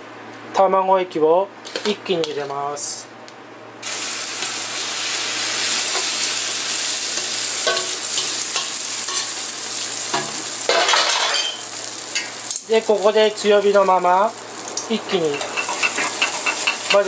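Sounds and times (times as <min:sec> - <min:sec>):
egg sizzling in frying pan: 0:03.8 - 0:17.0.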